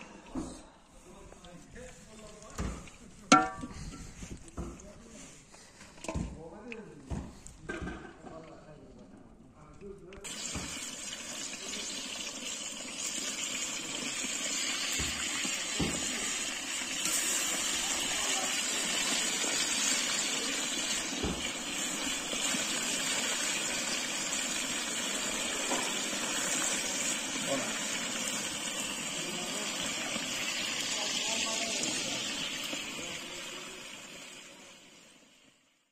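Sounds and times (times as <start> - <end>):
chicken deep-frying in oil: 10.2 - 35.9.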